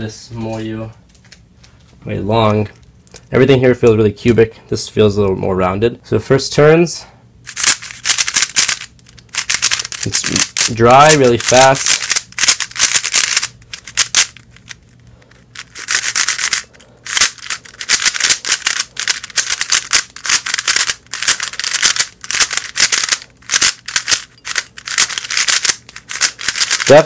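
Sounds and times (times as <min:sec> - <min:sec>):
puzzle cube turning with scratchy rasp: 0:07.5 - 0:27.0.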